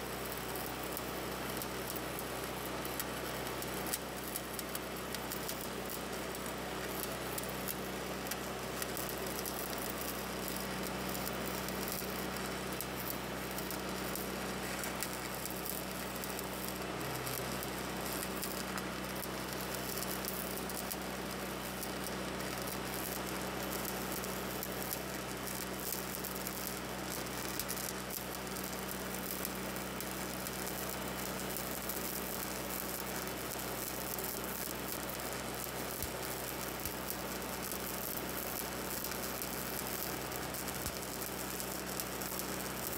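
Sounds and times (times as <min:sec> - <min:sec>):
welding arc crackling hiss: 0:00.1 - 0:42.9.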